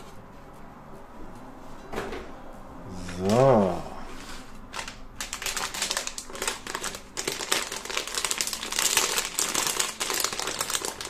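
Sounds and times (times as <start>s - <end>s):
plastic bag crinkling: 4.7s - 11.0s.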